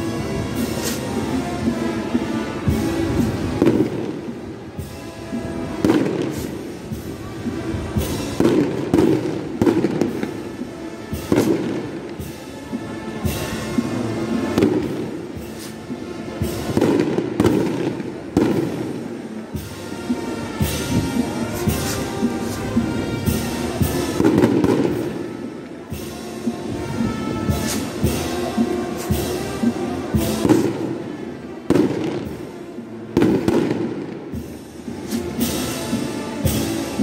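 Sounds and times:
fireworks banging: 0:00.0 - 0:37.0
music playing: 0:00.0 - 0:37.0.

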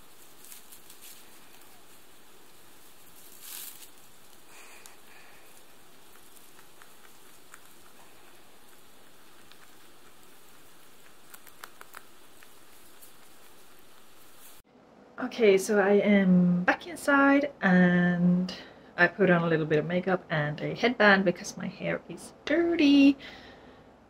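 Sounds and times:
hay rustling: 0:00.0 - 0:14.6
rabbit munching hay: 0:00.0 - 0:14.6
faint steady hiss: 0:00.0 - 0:24.0.

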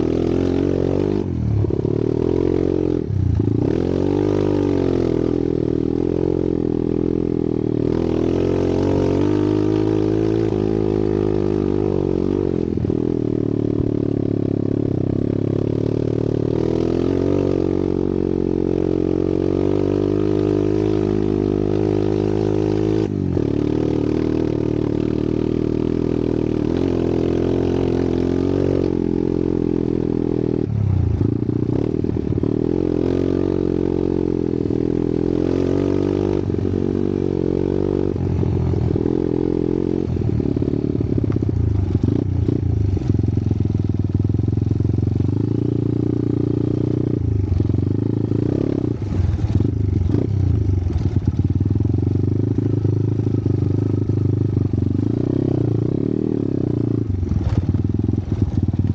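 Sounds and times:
dirt bike engine revving: 0:07.8 - 0:29.6, 0:45.3 - 0:51.4.

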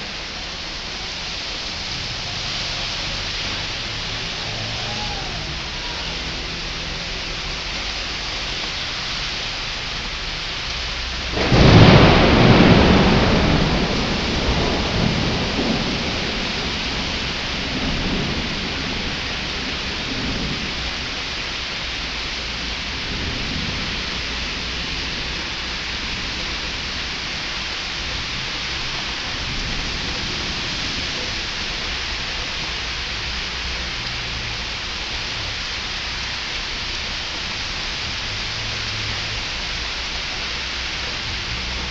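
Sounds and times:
heavy rain hissing: 0:00.0 - 0:41.9
thunder cracking and rumbling: 0:10.9 - 0:33.6.

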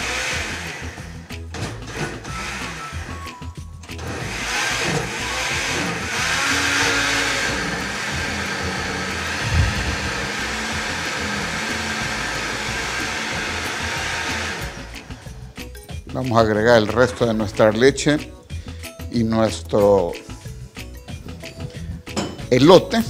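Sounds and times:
blender motor running: 0:00.0 - 0:15.6.

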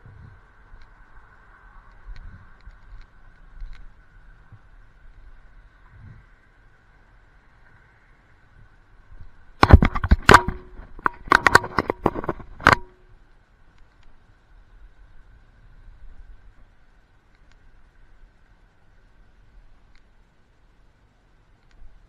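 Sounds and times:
faint high hum: 0:00.0 - 0:22.0
sharp knocks and clattering hits: 0:09.6 - 0:13.0.

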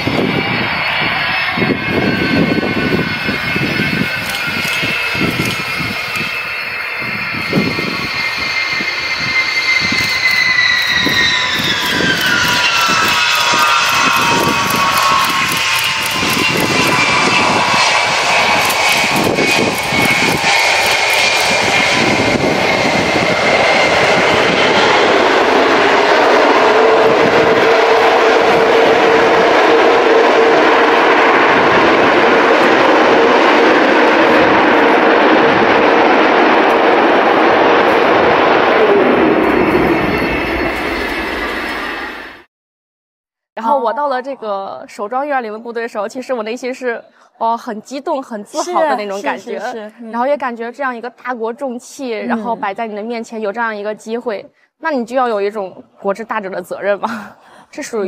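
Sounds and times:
gusty low rumble: 0:00.0 - 0:42.5
jet engine whine and roar: 0:00.0 - 0:42.5.

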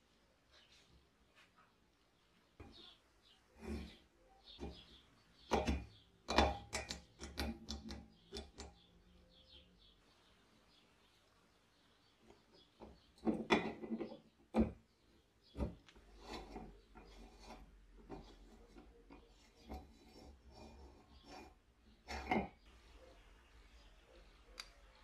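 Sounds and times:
rusty metal threads scraping: 0:16.1 - 0:22.6.

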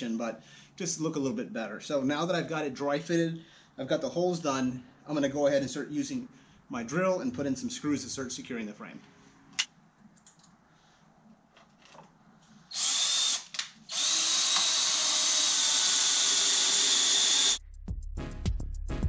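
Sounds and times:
cordless drill driving screws: 0:12.7 - 0:17.6.

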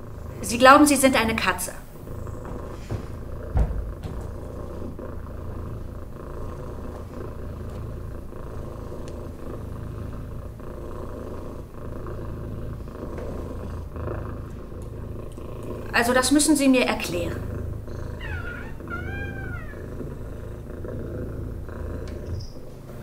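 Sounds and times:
low cat-like purring: 0:00.0 - 0:23.0
soft knock: 0:02.4 - 0:04.6.

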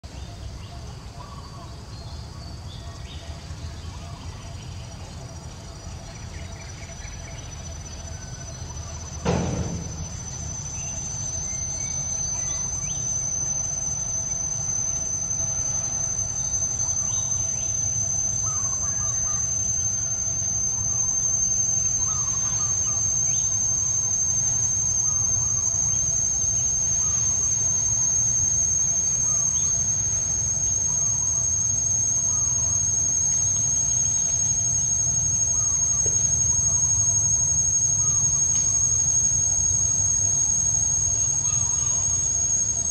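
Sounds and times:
high-pitched insect drone: 0:00.0 - 0:42.9
thump: 0:09.2 - 0:10.2.

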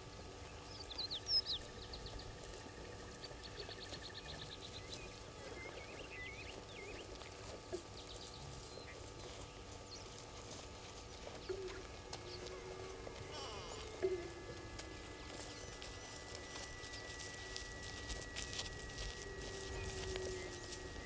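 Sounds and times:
songbirds chirping and trilling: 0:00.0 - 0:21.0.

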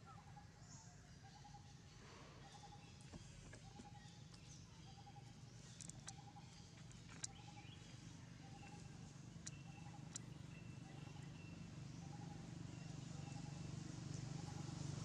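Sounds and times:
low steady hum: 0:00.0 - 0:15.0
sharp clicks: 0:05.8 - 0:06.2.

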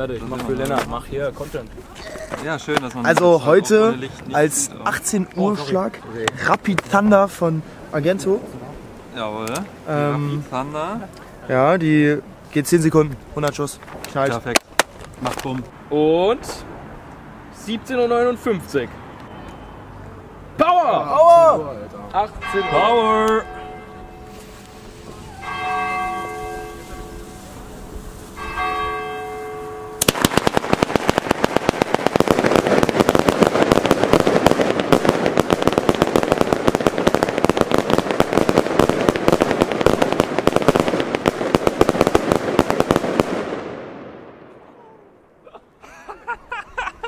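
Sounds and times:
church bell ringing: 0:22.4 - 0:30.0
firework salute bangs: 0:22.4 - 0:44.2.

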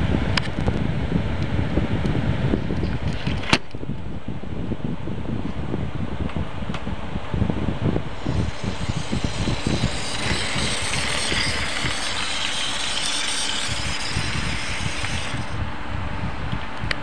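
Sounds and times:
small electric motor whirring: 0:08.1 - 0:15.6
model train wheels rattling on rails: 0:08.2 - 0:15.6.

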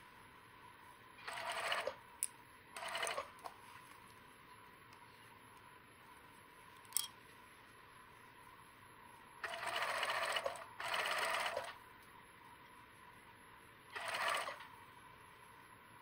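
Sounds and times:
sewing machine stitching: 0:01.2 - 0:02.0, 0:02.8 - 0:03.3, 0:09.4 - 0:11.8, 0:13.9 - 0:14.7.

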